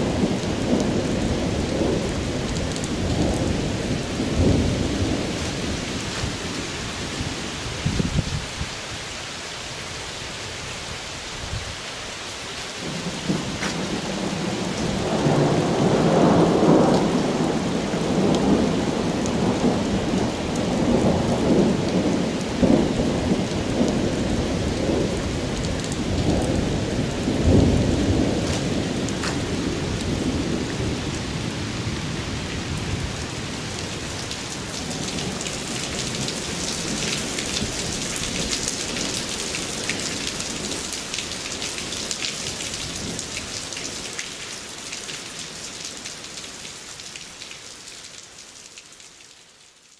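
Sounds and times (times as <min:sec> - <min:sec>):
steady rain: 0:00.0 - 0:49.9
thunder rolling: 0:12.8 - 0:33.6.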